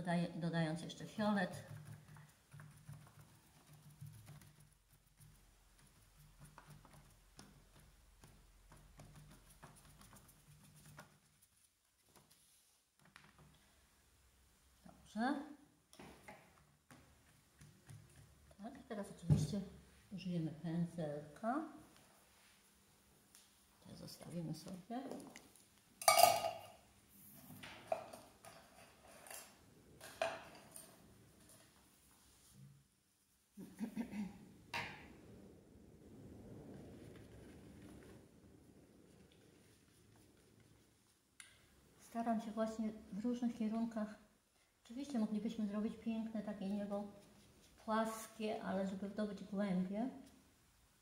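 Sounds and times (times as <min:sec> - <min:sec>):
sponge dabbing on paper: 0:01.2 - 0:13.0.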